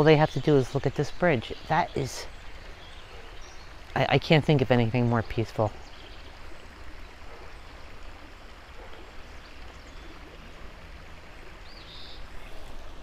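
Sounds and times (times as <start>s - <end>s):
creek water rushing: 0.0s - 13.0s.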